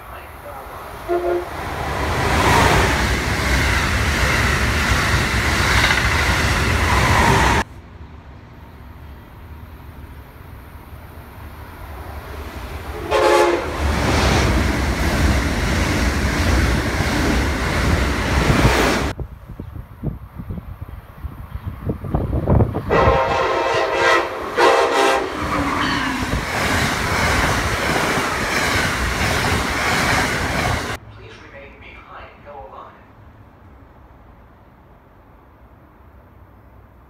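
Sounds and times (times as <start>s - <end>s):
train passing at speed: 0.0s - 37.0s
train horn blast: 1.0s - 1.6s, 13.0s - 13.8s, 22.9s - 26.2s.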